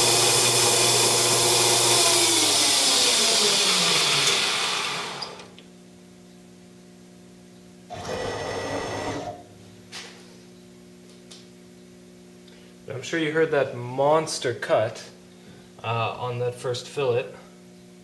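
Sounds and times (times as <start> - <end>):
lathe spindle winding down: 0.0 - 5.5, 7.9 - 9.4
faint steady hum: 5.3 - 18.0.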